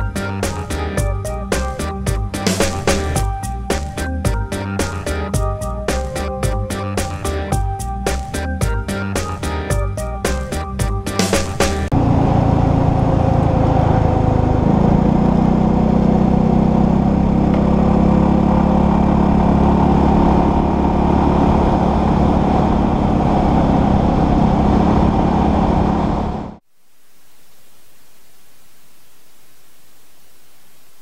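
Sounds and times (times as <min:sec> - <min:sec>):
music track: 0:00.0 - 0:12.0
scooter engine running: 0:11.8 - 0:26.6.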